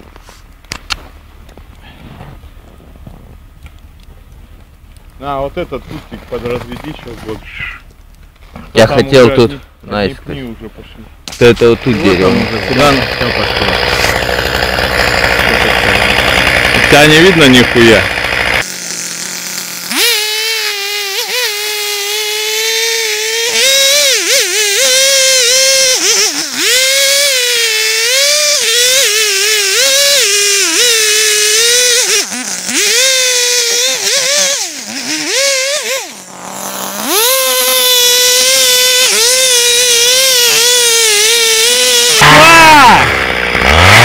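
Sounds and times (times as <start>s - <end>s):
chainsaw cutting into tree trunk: 11.3s - 44.0s.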